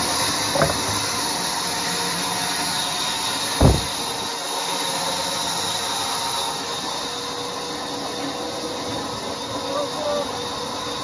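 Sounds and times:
heavy thump: 0:03.6 - 0:04.1.

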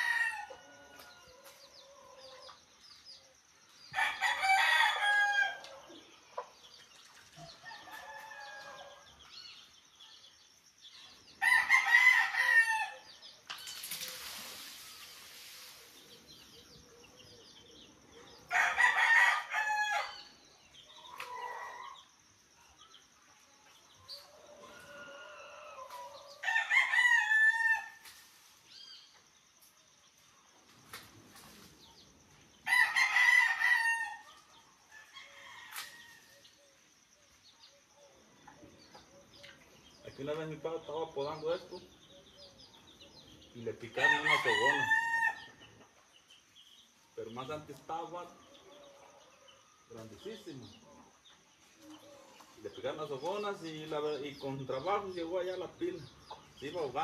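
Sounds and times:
rooster crowing: 0:00.0 - 0:01.4, 0:04.0 - 0:05.8, 0:11.4 - 0:13.1, 0:18.5 - 0:20.3, 0:24.5 - 0:28.0, 0:32.6 - 0:34.3, 0:44.0 - 0:45.6
brief rush of hiss: 0:13.7 - 0:16.4
chicken clucking: 0:50.8 - 0:52.7.

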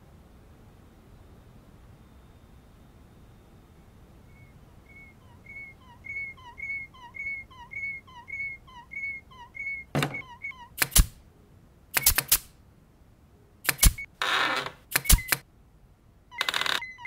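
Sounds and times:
whistle-like chirp: 0:04.3 - 0:10.7
sharp knock: 0:10.0 - 0:10.2.

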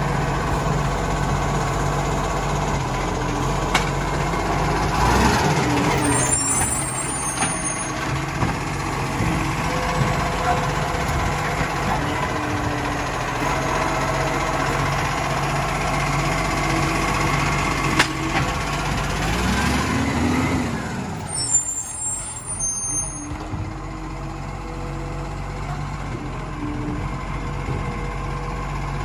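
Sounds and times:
garbage truck engine: 0:00.0 - 0:29.0
air brakes squealing: 0:06.0 - 0:08.0, 0:21.2 - 0:23.4.

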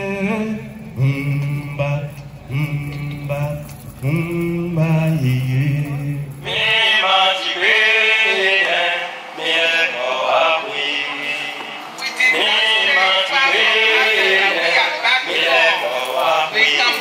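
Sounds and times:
chanting through microphone: 0:00.0 - 0:17.0.

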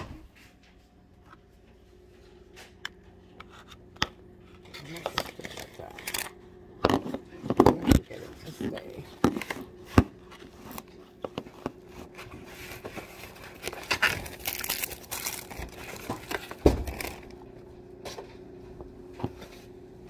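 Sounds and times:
faint steady hum: 0:00.0 - 0:20.0
plastic bag rustling: 0:11.7 - 0:17.4.

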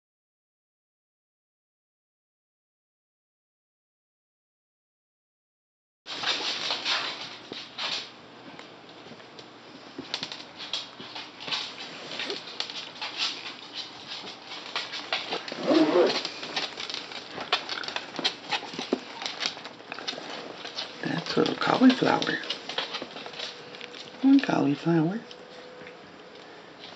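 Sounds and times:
puppies scuffling and scratching: 0:06.1 - 0:26.9
puppy vocal sound: 0:15.3 - 0:16.8.

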